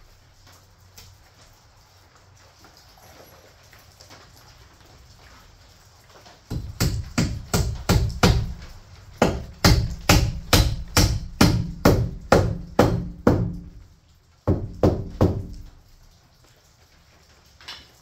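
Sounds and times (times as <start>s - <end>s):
hammer nailing into wood: 6.5s - 13.8s, 14.5s - 15.7s.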